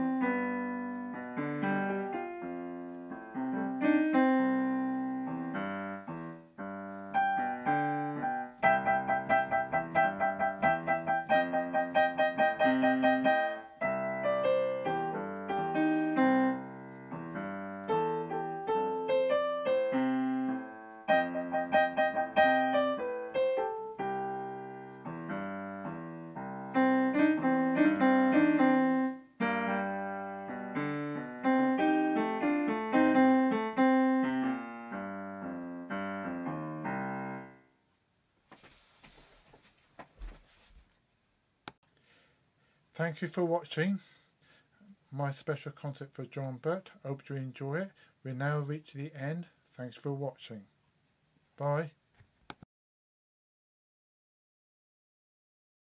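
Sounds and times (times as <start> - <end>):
digital piano playing: 0.0 - 37.7.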